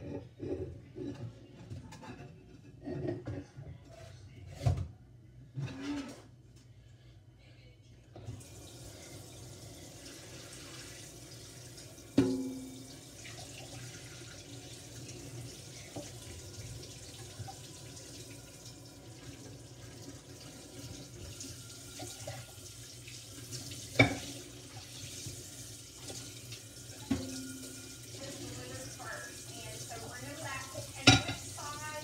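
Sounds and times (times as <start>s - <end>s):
faucet running into a sink: 8.3s - 32.0s
dishware clanking against sink: 12.2s - 12.9s, 23.9s - 24.4s, 27.0s - 28.3s, 30.9s - 31.7s.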